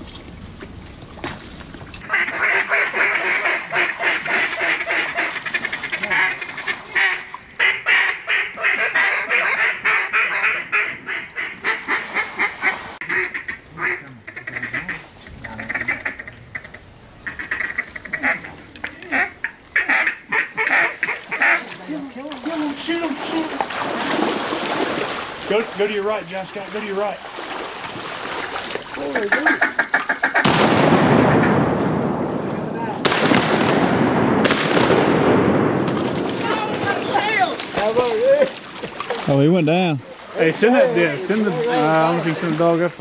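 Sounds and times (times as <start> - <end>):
duck quacking rapidly: 2.0 - 21.8, 29.1 - 30.5.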